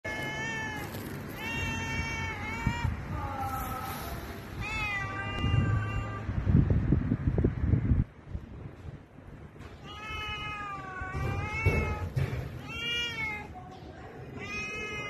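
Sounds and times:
cat meowing: 0.0s - 3.5s, 4.5s - 6.4s, 9.8s - 13.6s, 14.3s - 15.0s.

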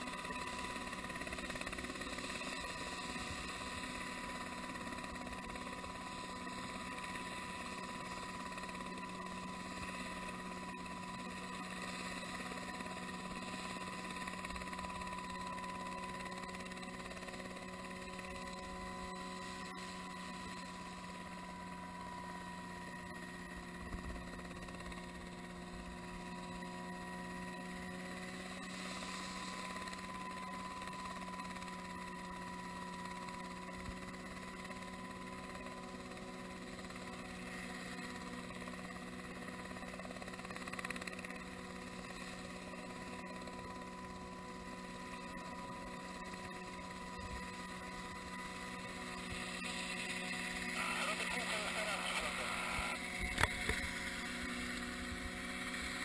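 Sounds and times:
distant helicopter engine hum: 0.0s - 56.0s.

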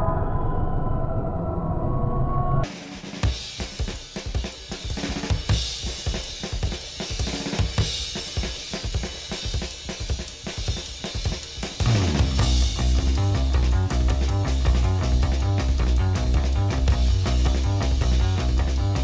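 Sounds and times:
drum kit playing: 2.6s - 19.0s
rock music: 2.6s - 19.0s
bass and guitar: 11.8s - 19.0s.

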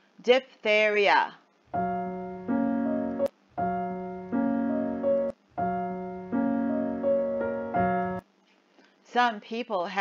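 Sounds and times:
piano-like keyboard chords: 1.8s - 8.2s.

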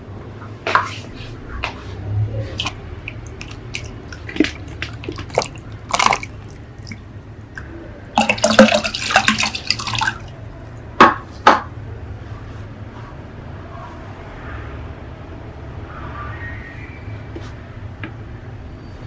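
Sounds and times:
water pouring and splashing: 2.5s - 7.0s, 8.2s - 10.7s
water dripping: 2.6s - 10.8s.

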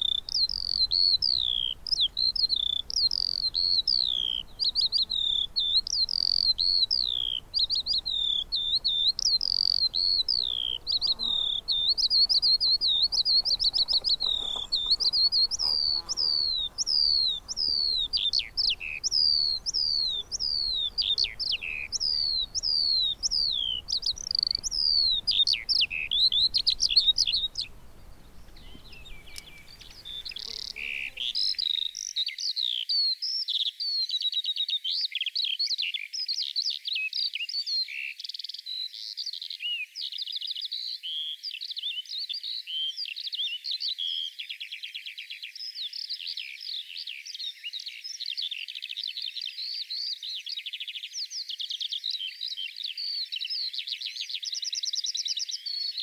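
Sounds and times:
skylark singing: 0.0s - 31.6s.

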